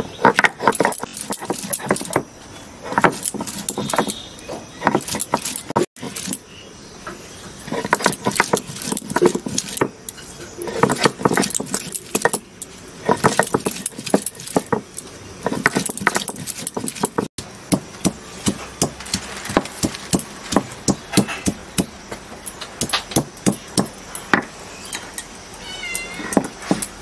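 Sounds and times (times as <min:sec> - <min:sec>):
stone roller grinding on slab: 0:00.0 - 0:06.4, 0:07.6 - 0:24.6, 0:26.2 - 0:27.0
bangles clinking: 0:00.4 - 0:02.3, 0:02.9 - 0:04.2, 0:04.8 - 0:06.5, 0:07.8 - 0:17.3.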